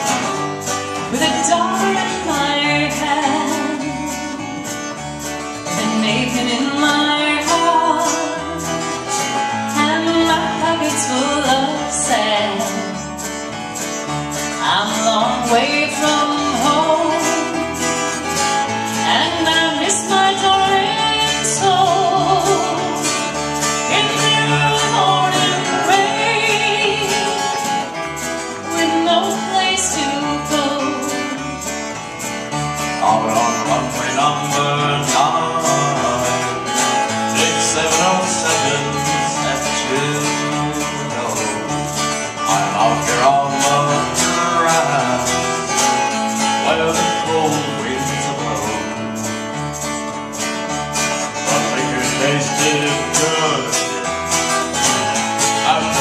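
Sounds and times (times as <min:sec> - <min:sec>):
acoustic guitar strumming: 0:00.0 - 0:56.0
man singing: 0:14.8 - 0:27.9, 0:32.8 - 0:49.4, 0:51.3 - 0:56.0.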